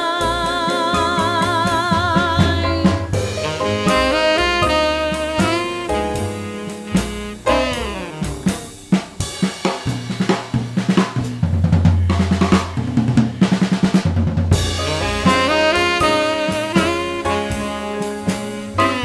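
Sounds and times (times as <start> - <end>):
saxophone line: 0.0 - 9.2, 14.6 - 19.0
jazz drum solo: 0.0 - 19.0.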